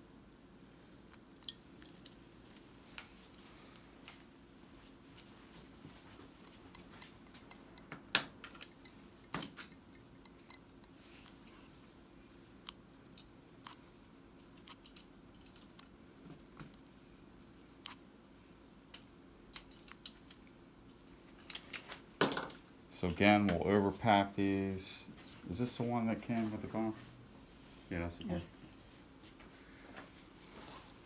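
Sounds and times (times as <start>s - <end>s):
low steady hum: 0.0s - 31.0s
dental instruments clicking: 6.4s - 11.4s, 14.4s - 16.0s.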